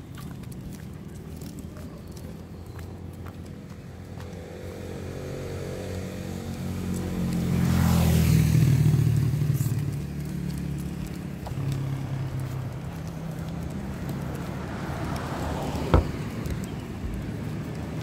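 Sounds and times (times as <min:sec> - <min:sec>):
vehicle engine passing by: 0:04.1 - 0:18.0.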